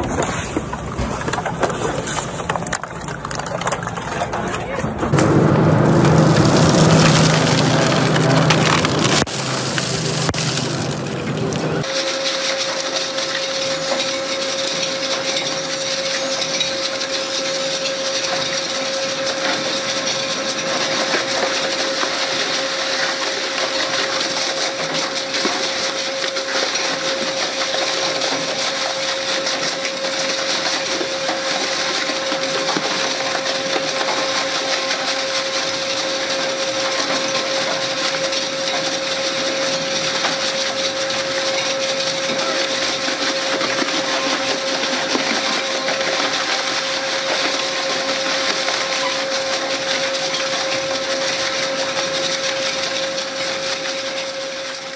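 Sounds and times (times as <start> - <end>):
shredder grinding tyres: 5.0 - 54.9
motor whine: 5.1 - 11.9
small crunches: 5.2 - 11.9.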